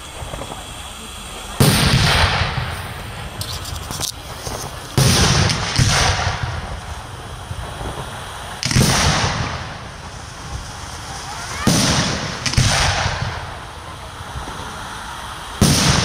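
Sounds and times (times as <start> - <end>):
faint fireworks pops: 0.0 - 14.9, 15.5 - 16.0
fireworks bangs: 0.0 - 16.0.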